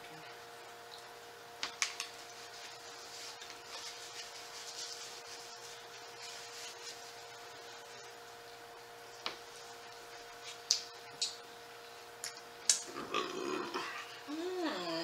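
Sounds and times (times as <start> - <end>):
paper napkin wiping: 2.5 - 8.1.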